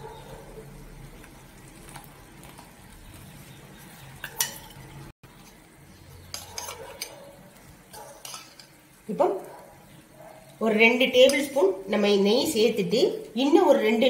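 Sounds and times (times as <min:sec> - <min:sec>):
faint cooking on stove: 0:00.0 - 0:14.0
metallic clatter in pan: 0:04.2 - 0:04.9, 0:06.3 - 0:07.2, 0:07.9 - 0:08.8.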